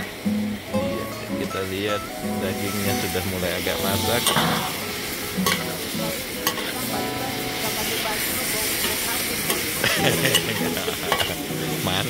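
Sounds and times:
meat sizzling in a wok: 0.0s - 12.0s.

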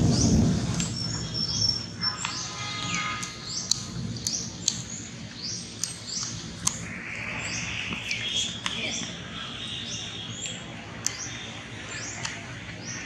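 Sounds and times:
small birds chirping: 0.0s - 13.0s
sharp clicks: 3.2s - 6.9s, 10.4s - 11.3s.

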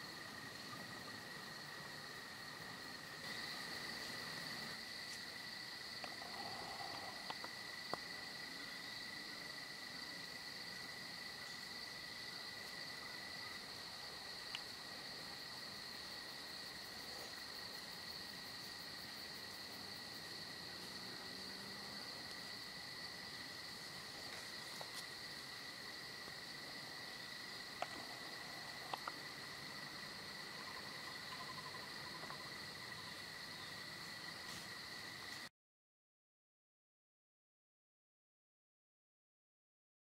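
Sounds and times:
insects trilling: 0.0s - 35.5s
faint clicks: 6.0s - 8.1s, 14.5s - 14.7s, 27.8s - 28.1s, 28.8s - 29.2s.

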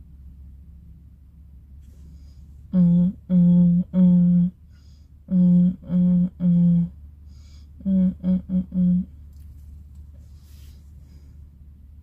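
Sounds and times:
woman humming: 2.7s - 4.6s, 5.3s - 7.0s, 7.8s - 9.2s.

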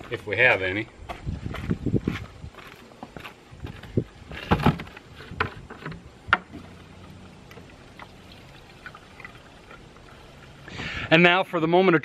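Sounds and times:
gasoline pouring: 6.5s - 11.1s.

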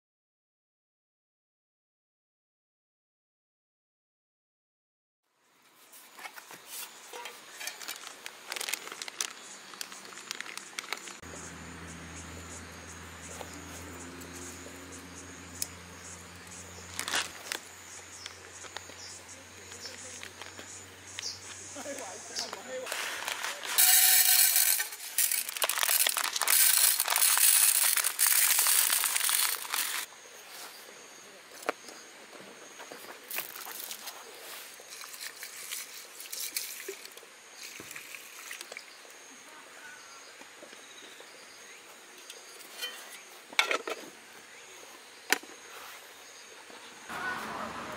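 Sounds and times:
insects chirping: 6.2s - 47.3s
packaging crinkling and clicking: 7.6s - 11.2s, 16.9s - 17.6s, 22.9s - 30.1s
rice grains pattering on metal: 21.8s - 30.1s.

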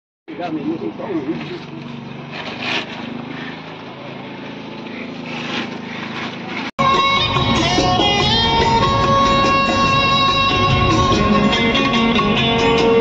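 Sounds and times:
engine drone with hiss: 0.4s - 13.0s
loud instrumental music: 6.8s - 13.0s.

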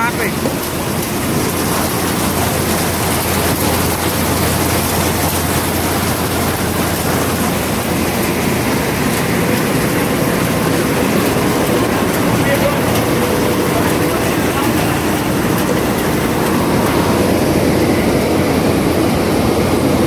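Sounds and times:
combine harvester running: 0.0s - 20.0s.

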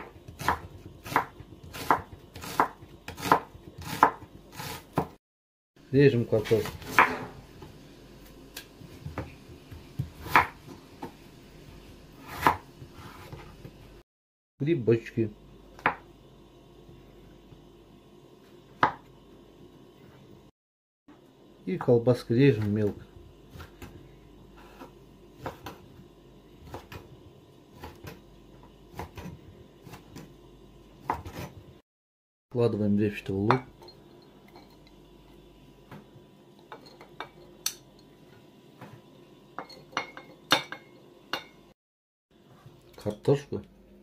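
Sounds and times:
knife chopping on wooden board: 0.0s - 5.2s, 6.5s - 7.3s, 9.0s - 11.2s, 12.2s - 13.4s, 18.8s - 19.0s, 24.6s - 25.8s, 31.0s - 31.6s.

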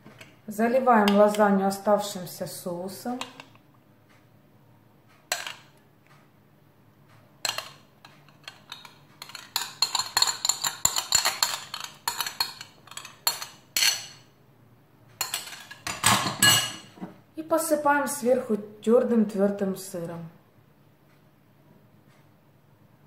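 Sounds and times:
cutlery scraping a bowl: 7.4s - 14.3s, 15.2s - 17.0s.

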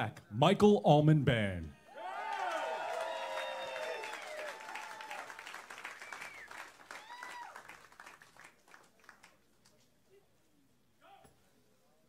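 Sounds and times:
audience whooping: 1.9s - 8.0s
audience applauding: 2.0s - 9.4s.

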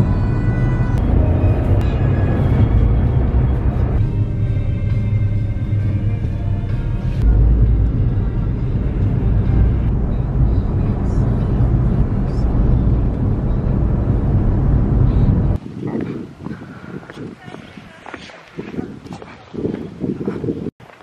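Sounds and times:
low rumble with hiss: 0.0s - 15.6s.

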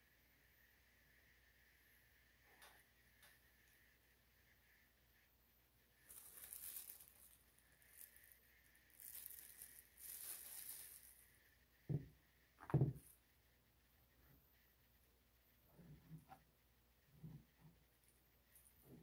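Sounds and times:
plastic glove crinkling: 6.0s - 11.4s.

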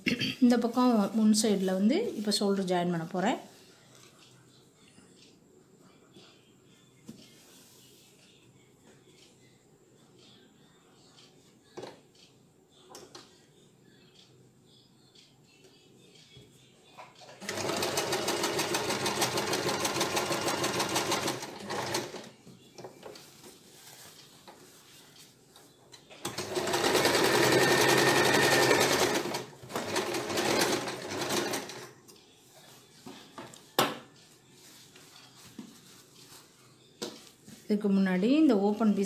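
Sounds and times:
sewing machine stitching: 17.4s - 22.3s, 26.2s - 31.9s.

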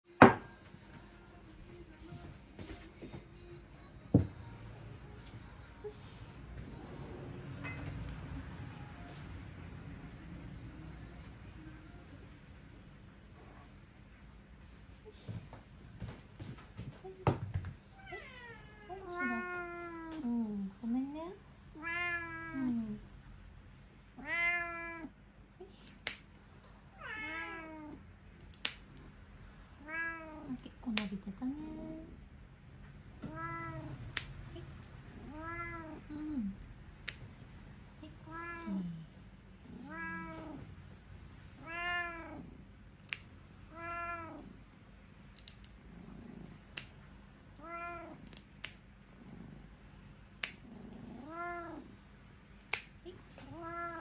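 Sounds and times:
cat meowing: 17.9s - 20.2s, 21.7s - 22.7s, 24.2s - 25.1s, 27.0s - 28.0s, 29.8s - 30.5s, 33.2s - 34.3s, 35.1s - 36.1s, 38.2s - 38.9s, 39.7s - 40.6s, 41.6s - 42.5s, 43.7s - 44.5s, 47.6s - 48.3s, 51.1s - 51.9s, 53.4s - 54.0s
nail clipper snip: 25.8s - 26.3s, 28.4s - 29.0s, 34.0s - 34.4s, 37.0s - 37.2s, 43.0s - 43.3s, 45.4s - 45.8s, 48.2s - 48.8s, 50.4s - 50.6s, 52.6s - 53.0s.

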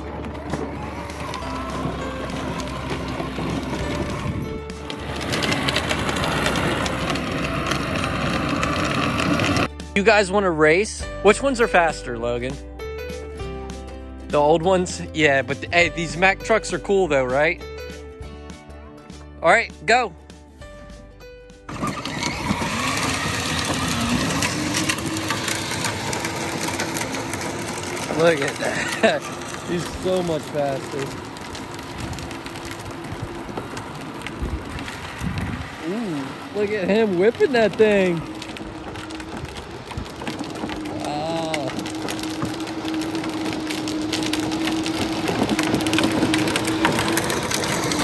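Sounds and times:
toy vehicle electric motors whining: 0.0s - 9.7s, 21.7s - 48.0s
plastic wheels grinding on pavement: 0.0s - 13.2s, 14.3s - 17.6s, 21.6s - 48.0s.

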